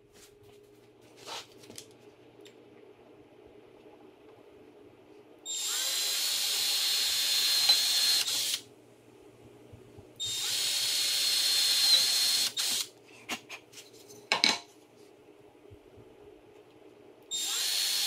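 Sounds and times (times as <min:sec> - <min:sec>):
cordless drill whining: 0:05.5 - 0:08.6, 0:10.2 - 0:12.9, 0:17.3 - 0:18.0.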